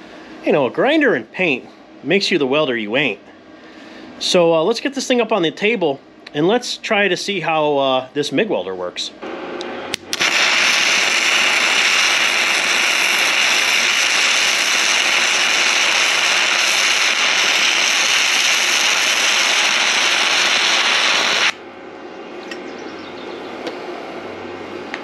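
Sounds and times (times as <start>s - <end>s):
welding arc sizzling: 9.2s - 21.6s.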